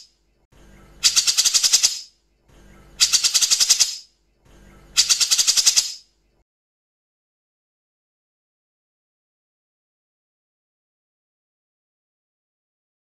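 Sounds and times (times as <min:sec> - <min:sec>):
bird harsh rattling call: 0:01.0 - 0:02.1, 0:03.0 - 0:04.1, 0:04.9 - 0:06.1.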